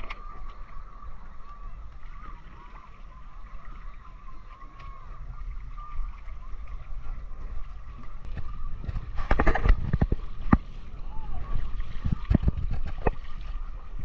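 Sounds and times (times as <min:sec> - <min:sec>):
paddle stirring water: 0:00.0 - 0:14.0
wind rumble on microphone: 0:00.0 - 0:14.0
sharp knocks and splashes: 0:08.0 - 0:13.7.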